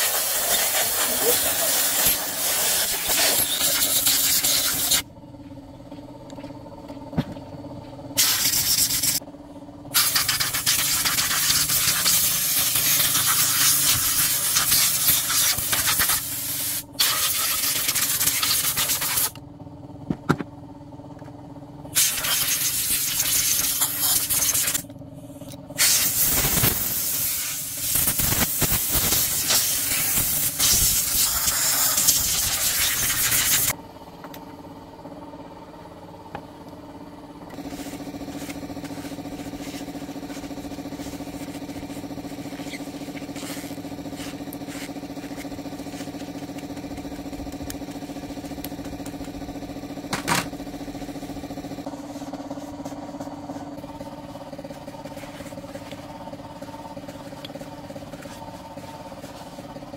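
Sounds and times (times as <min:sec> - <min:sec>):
compressed air hissing: 0:00.0 - 0:05.0, 0:08.2 - 0:09.2, 0:10.0 - 0:19.3, 0:22.0 - 0:24.8, 0:25.8 - 0:33.7
steady hum: 0:00.1 - 0:59.9.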